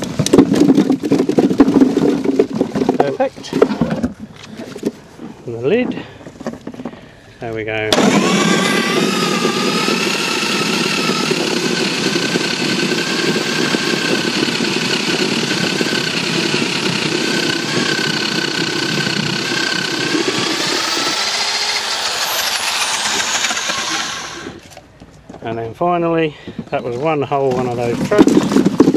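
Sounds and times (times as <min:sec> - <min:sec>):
machine grinding apples: 0:07.9 - 0:24.7, 0:27.6 - 0:28.9
motor hum: 0:07.9 - 0:24.8.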